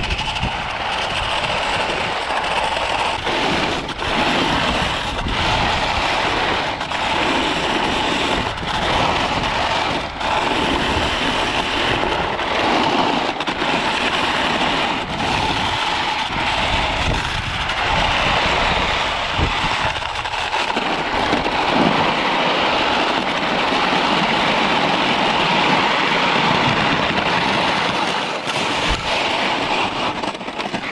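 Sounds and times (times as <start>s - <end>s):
skis scraping on hard snow: 0.0s - 30.9s
wind buffeting microphone: 0.0s - 30.9s.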